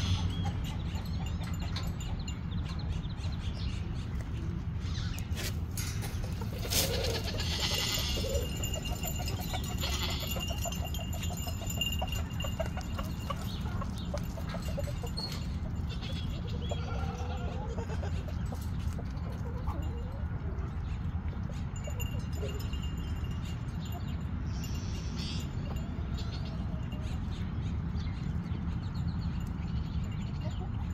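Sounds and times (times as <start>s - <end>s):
chickens clucking: 0.0s - 22.9s.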